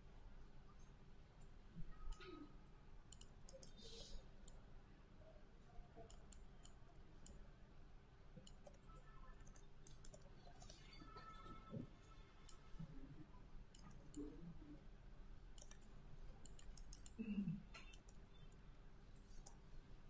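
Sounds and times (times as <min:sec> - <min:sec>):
low steady hum: 0:00.0 - 0:20.0
computer mouse clicks: 0:01.4 - 0:02.4, 0:03.1 - 0:04.6, 0:06.0 - 0:07.4, 0:08.4 - 0:11.7, 0:12.4 - 0:12.8, 0:13.7 - 0:14.4, 0:15.5 - 0:19.6.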